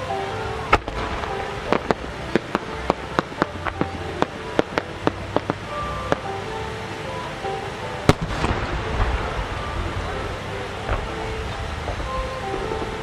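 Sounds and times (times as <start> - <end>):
sharp firework pops: 8.1 - 9.2
firework mortar bang: 8.1 - 10.2.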